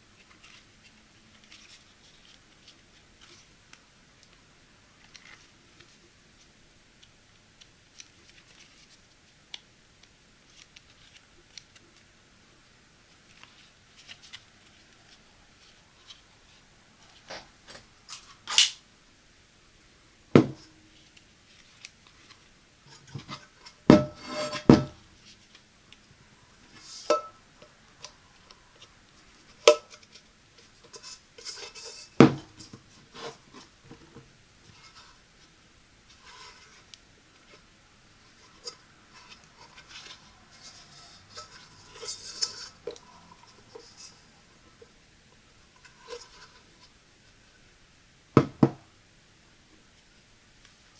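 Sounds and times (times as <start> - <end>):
hands rubbing silicone strainer: 36.1 - 37.7, 38.3 - 44.9.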